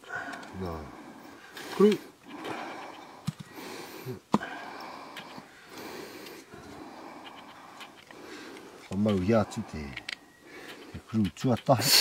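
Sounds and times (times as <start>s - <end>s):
plastic parts clicking: 7.3s - 11.9s.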